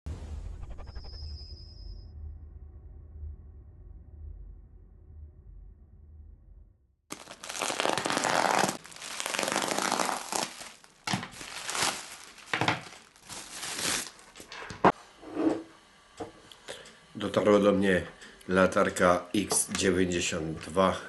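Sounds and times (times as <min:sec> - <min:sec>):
bubble wrap crinkling and tearing: 0:07.1 - 0:14.5.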